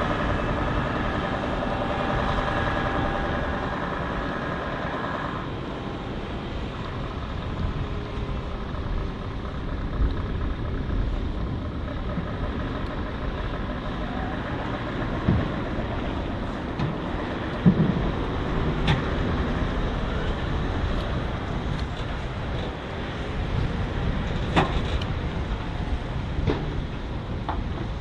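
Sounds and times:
diesel truck engine rumbling: 0.0s - 28.0s.

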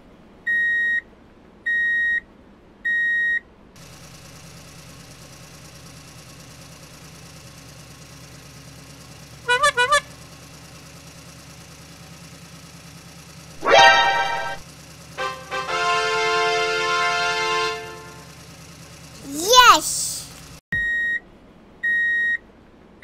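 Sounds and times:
short warbling pulses: 13.6s - 14.6s.

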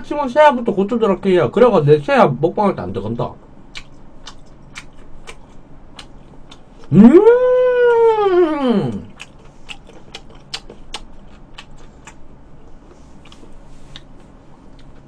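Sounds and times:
chewing clicks: 3.7s - 6.9s, 8.9s - 12.2s, 13.2s - 14.2s
high-pitched vocal sound: 6.9s - 9.1s.

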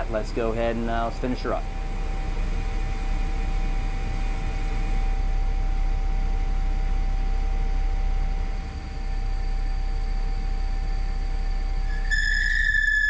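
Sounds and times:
lathe machine rumble and whine: 0.0s - 13.0s.

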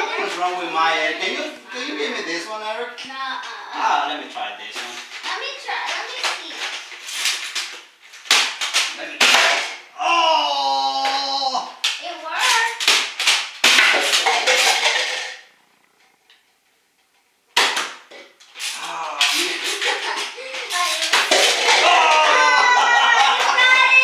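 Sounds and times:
foam darts knocking over plastic cups: 4.8s - 9.8s, 11.8s - 15.5s, 17.5s - 24.0s
child shouting: 20.7s - 24.0s.

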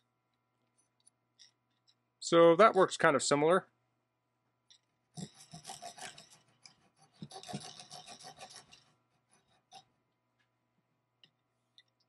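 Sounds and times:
small saw sawing wood: 5.2s - 10.0s.

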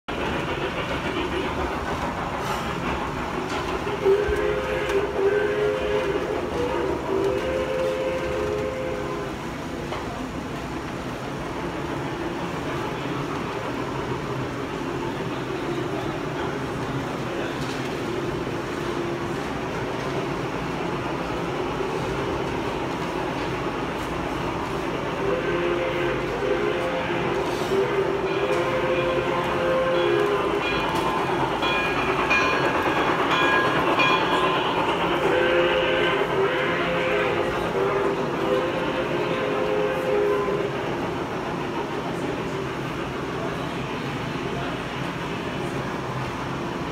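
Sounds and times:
model train rumbling: 0.0s - 46.9s
train whistle tone: 4.0s - 9.4s, 25.2s - 31.0s, 31.6s - 40.7s.

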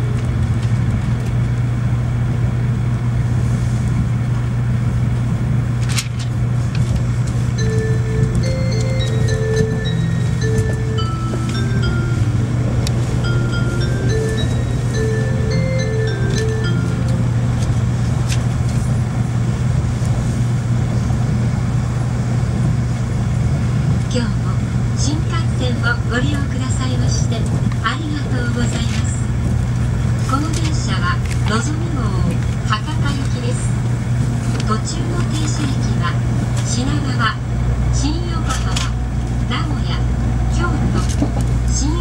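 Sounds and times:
train cabin hum and rolling noise: 0.0s - 42.0s.

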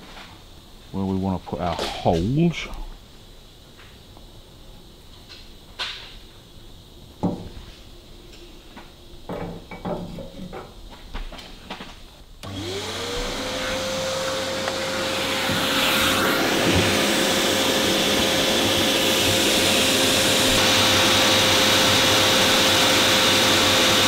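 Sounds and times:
hiss: 11.4s - 24.0s
electric motor humming: 12.4s - 24.0s.

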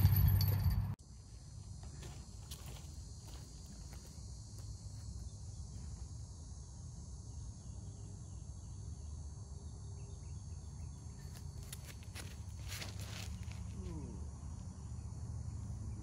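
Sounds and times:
insect chorus: 1.0s - 16.0s.

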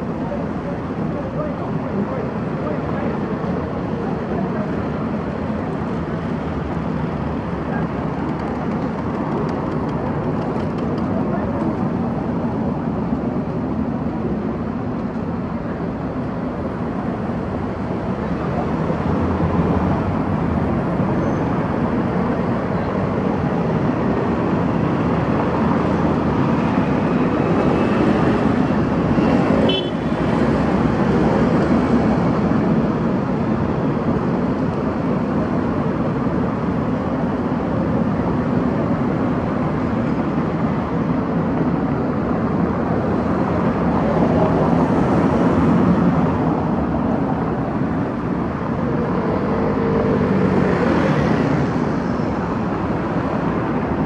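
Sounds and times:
cars passing: 0.0s - 54.0s.

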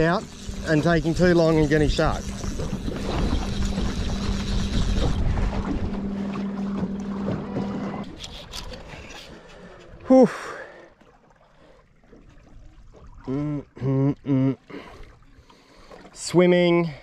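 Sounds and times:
electric motor humming: 0.0s - 9.6s
wind and water noise: 0.0s - 17.0s.

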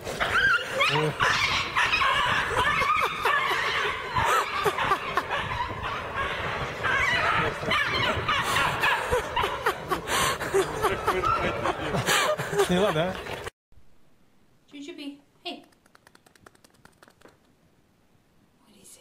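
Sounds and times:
people laughing: 2.2s - 5.9s, 7.1s - 13.5s.

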